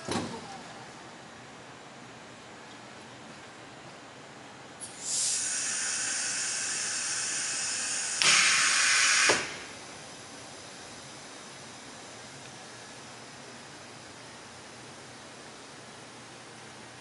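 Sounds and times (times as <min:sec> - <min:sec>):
compressed air hissing: 0:04.8 - 0:09.7.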